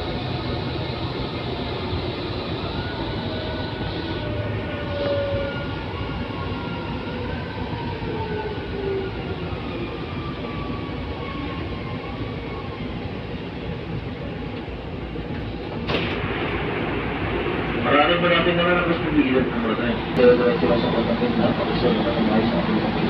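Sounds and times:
train running gear rumble: 0:00.0 - 0:23.0.

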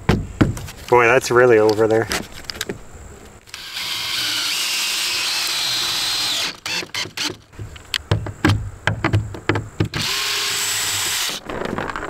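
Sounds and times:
cordless drill whining: 0:03.5 - 0:07.3, 0:10.0 - 0:11.4
drill clicks: 0:03.5 - 0:07.4, 0:09.9 - 0:11.4.

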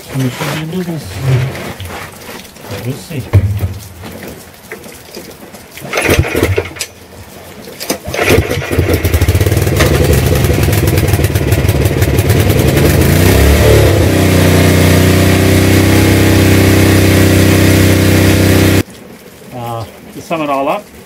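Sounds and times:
generator engine running: 0:05.9 - 0:06.8, 0:08.1 - 0:18.8
generator pull-start: 0:05.9 - 0:06.9, 0:07.8 - 0:10.8.

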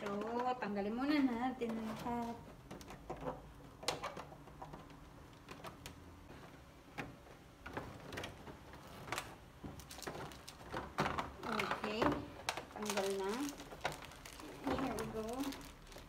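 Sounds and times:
plastic packaging crinkling: 0:07.7 - 0:16.0.

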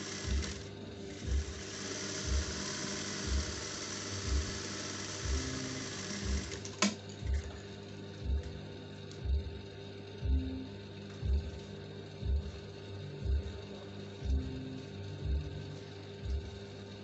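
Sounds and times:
sewing machine running: 0:00.0 - 0:07.0.

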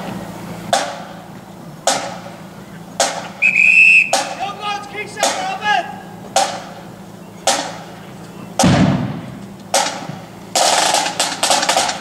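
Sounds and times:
short gliding high calls: 0:00.9 - 0:08.6
whistle blast: 0:03.2 - 0:04.9
bass drum beats: 0:04.1 - 0:12.0.

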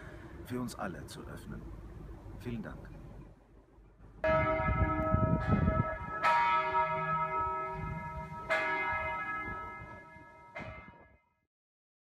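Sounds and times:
church bell tolling: 0:04.2 - 0:11.2.

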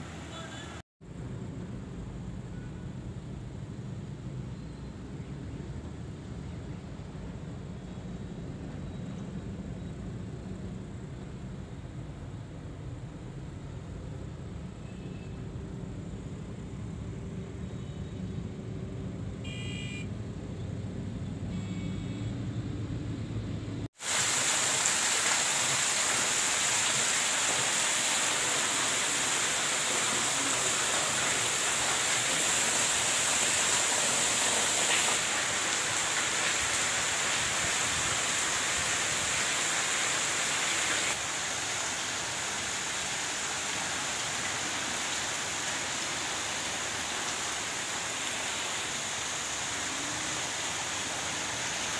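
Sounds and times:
heavy rain hissing: 0:24.0 - 0:51.9.

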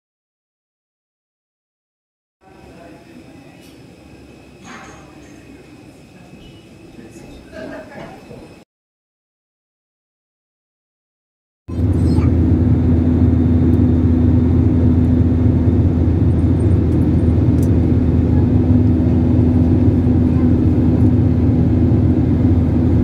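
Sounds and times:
airliner cabin engine drone: 0:02.4 - 0:08.6, 0:11.7 - 0:23.0.

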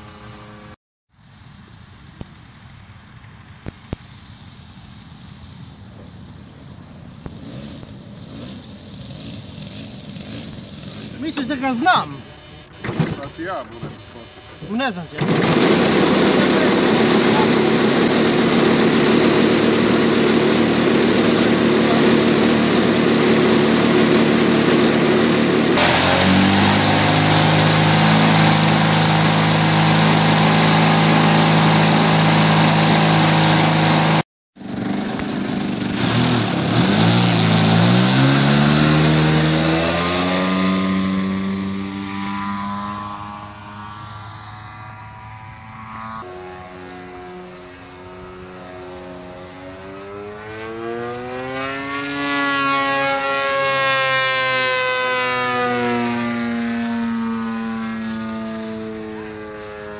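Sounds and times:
model plane engine running: 0:07.4 - 0:50.9.

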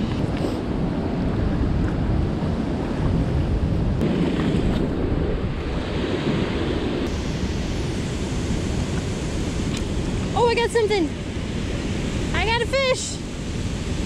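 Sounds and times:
wind buffeting microphone: 0:00.0 - 0:14.0
river water rushing: 0:04.0 - 0:14.0.

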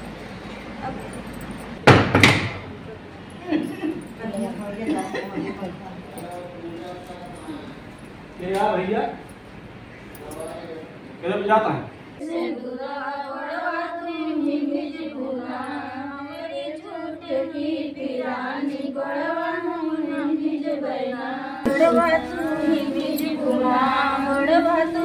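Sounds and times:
woman singing slow song: 0:12.2 - 0:25.0.

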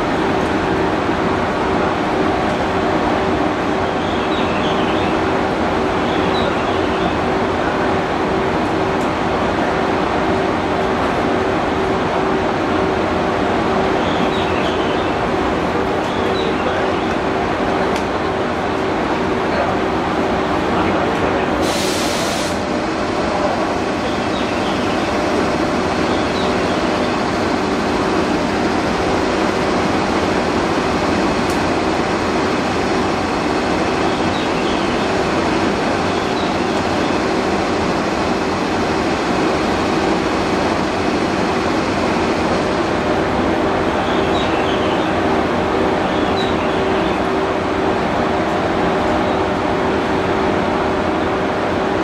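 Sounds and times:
locomotive machinery humming: 0:00.0 - 0:52.0
short air hiss: 0:21.6 - 0:22.7.

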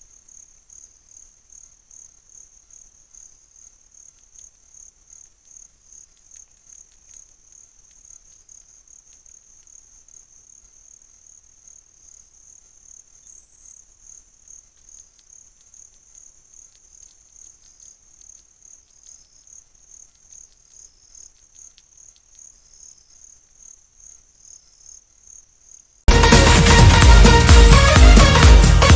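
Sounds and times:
insect pulsing trill: 0:00.0 - 0:26.0
loud electronic music: 0:26.1 - 0:28.9.

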